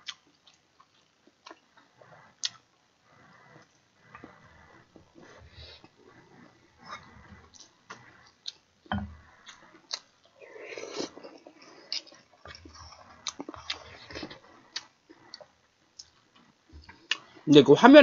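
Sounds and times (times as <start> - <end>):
chewing: 0.0 - 17.4
slurping from a spoon: 9.2 - 15.5.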